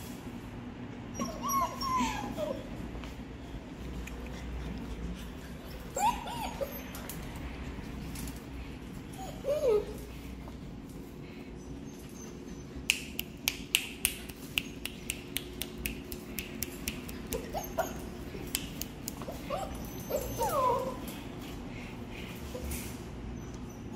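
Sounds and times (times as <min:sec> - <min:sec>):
puppies whimpering and whining: 0:01.0 - 0:03.0, 0:04.2 - 0:12.9, 0:17.2 - 0:18.5, 0:19.1 - 0:23.9.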